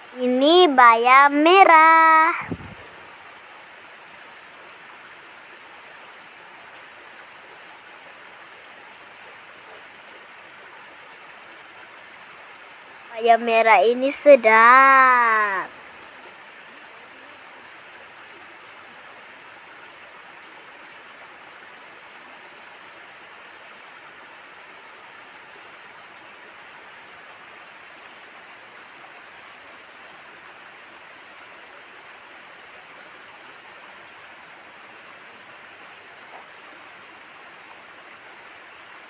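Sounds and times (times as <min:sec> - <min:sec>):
steady outdoor hiss: 0:00.0 - 0:39.0.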